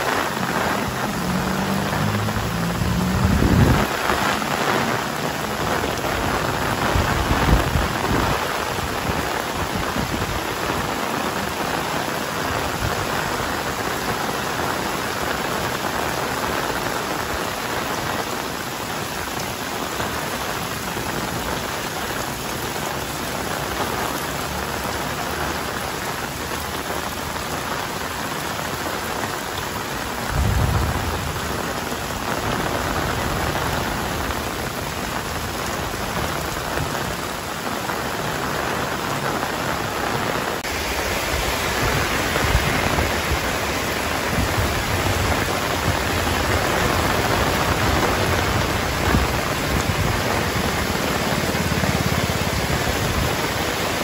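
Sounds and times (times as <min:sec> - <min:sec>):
heavy rain: 0:00.0 - 0:54.0
low rumble: 0:01.3 - 0:03.9, 0:30.3 - 0:32.2.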